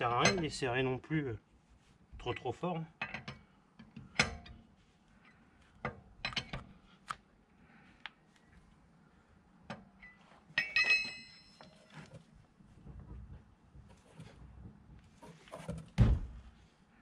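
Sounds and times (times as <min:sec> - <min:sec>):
metal on metal clatter: 0:10.5 - 0:12.0.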